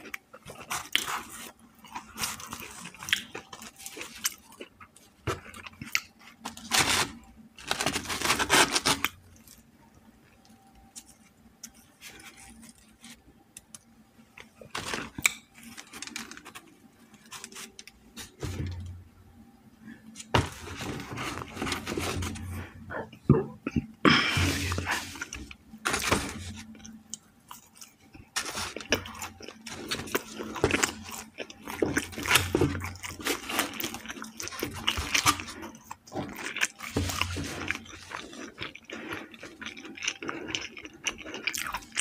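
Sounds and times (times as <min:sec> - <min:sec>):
wet chewing: 0:26.6 - 0:42.0.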